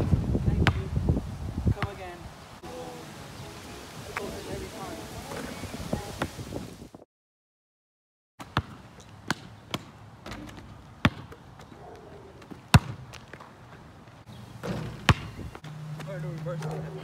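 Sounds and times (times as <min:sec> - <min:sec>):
basketball bouncing on asphalt: 0:00.6 - 0:00.9, 0:08.4 - 0:16.8.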